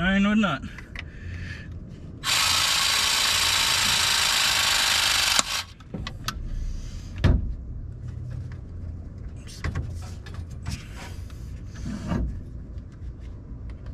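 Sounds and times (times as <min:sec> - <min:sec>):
press tool motor running: 0:02.2 - 0:05.8.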